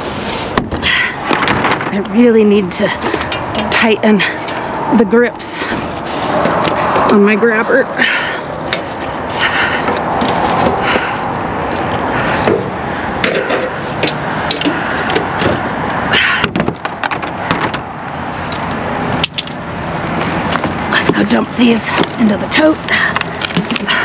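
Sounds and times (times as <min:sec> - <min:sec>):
plastic trash bags rustling: 0:00.0 - 0:00.6, 0:05.6 - 0:12.0.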